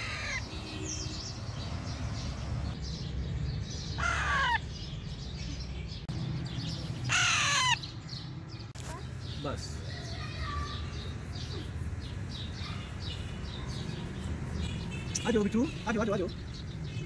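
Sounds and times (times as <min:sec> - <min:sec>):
parakeet calling: 0:00.0 - 0:01.6, 0:03.9 - 0:04.7, 0:07.1 - 0:08.0.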